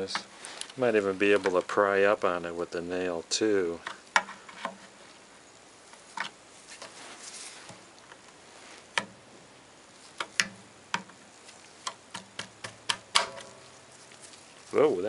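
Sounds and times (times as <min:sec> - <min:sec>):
sharp irregular clicks: 0:11.8 - 0:13.6.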